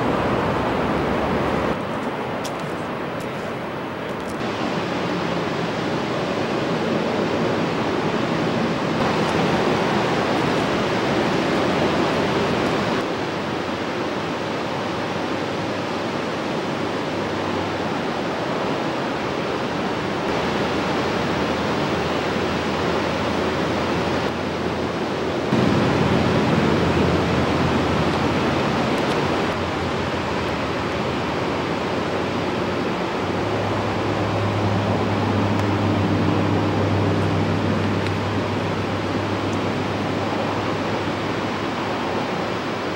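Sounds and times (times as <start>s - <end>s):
surf breaking on beach: 4.4s - 15.4s, 25.4s - 42.9s.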